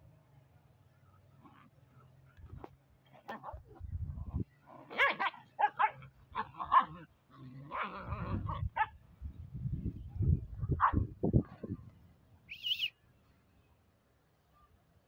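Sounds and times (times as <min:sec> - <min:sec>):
puppies barking: 0:04.8 - 0:07.1.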